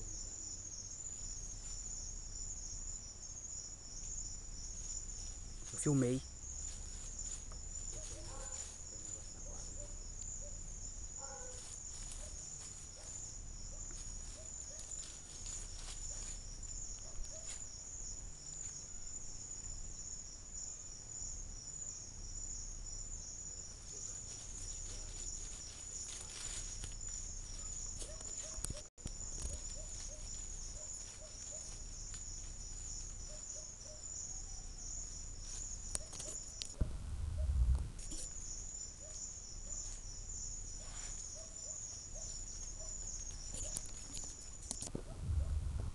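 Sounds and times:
crickets trilling: 0.0s - 45.9s
low rumble: 36.8s - 38.0s.

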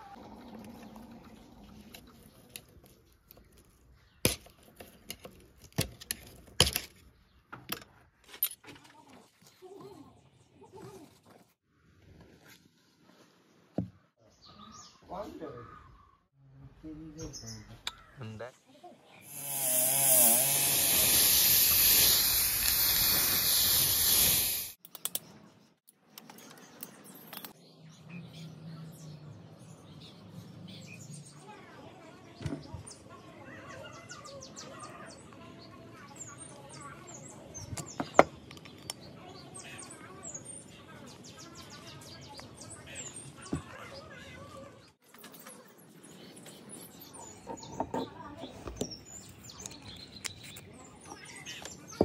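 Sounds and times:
wire brush wheel scouring metal: 19.3s - 24.8s.

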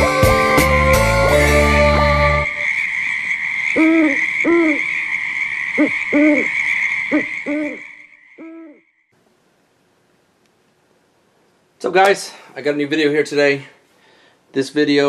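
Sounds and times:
hooting calls: 1.8s - 9.0s
high-pitched hum: 7.1s - 8.8s.

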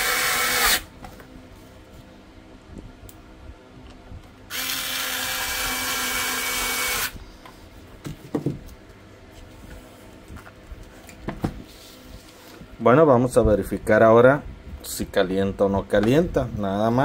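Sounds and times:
drill-driver running: 0.0s - 0.9s, 4.5s - 7.2s.

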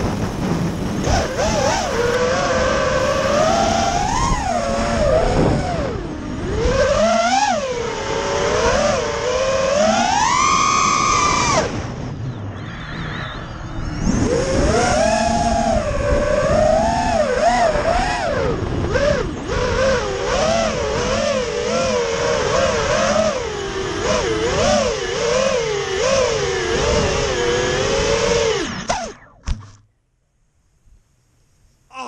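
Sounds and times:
steady rushing hiss: 0.0s - 5.4s
drone motors whining: 0.0s - 29.8s.

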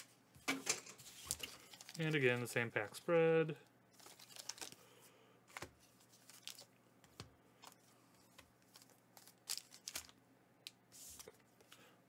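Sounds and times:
foil packs crinkling: 1.1s - 3.0s, 3.9s - 4.9s, 6.1s - 6.7s, 8.7s - 10.2s.

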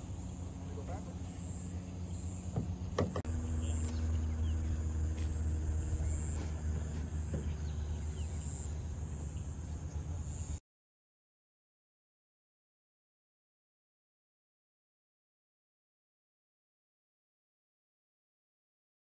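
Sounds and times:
low rumble: 0.0s - 10.6s
sharp knocks: 2.5s - 3.3s, 6.4s - 7.6s.

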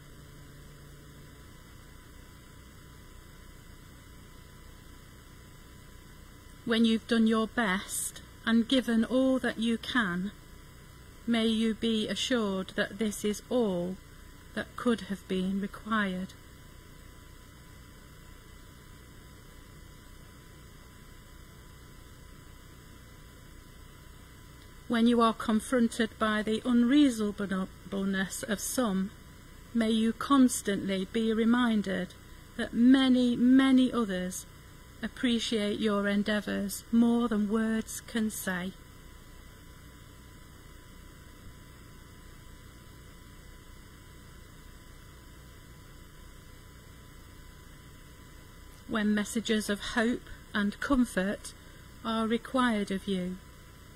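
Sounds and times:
faint hiss: 0.0s - 53.9s
low electrical mains hum: 0.0s - 53.9s.

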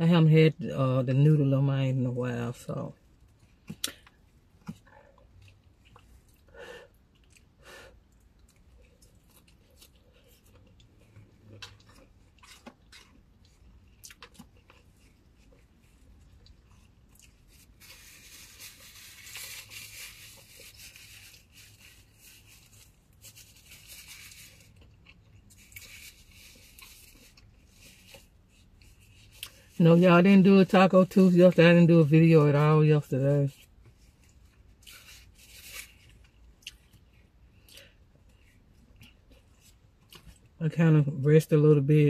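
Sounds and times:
chewing with small clicks: 3.2s - 17.6s, 24.6s - 25.9s, 36.1s - 40.6s
rustling noise: 16.8s - 24.9s, 32.3s - 36.4s.

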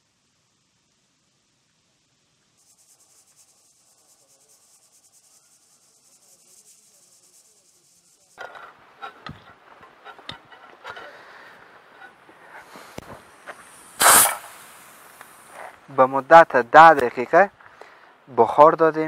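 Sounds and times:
sharp knocks and clatter: 8.4s - 11.2s
pressure cooker hissing: 11.1s - 15.8s.

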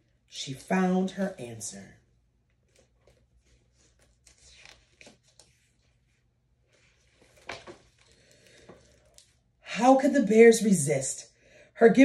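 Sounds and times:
picture book rustling: 2.4s - 9.5s.

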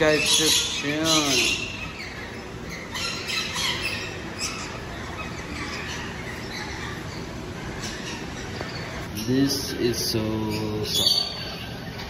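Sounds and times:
birds chirping and squawking: 0.0s - 12.0s
steady background noise: 0.0s - 12.0s.

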